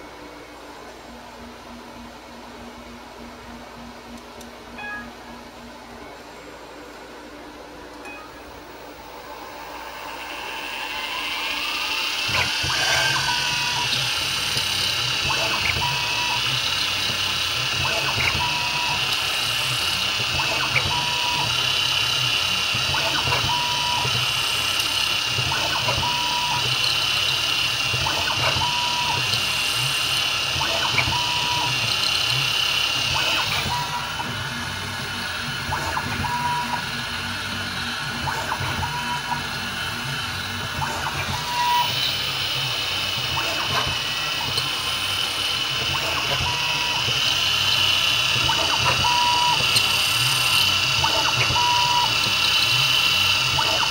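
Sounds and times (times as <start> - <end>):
milling machine high whine: 0.0 - 53.9
short beep-like tones: 4.8 - 5.2.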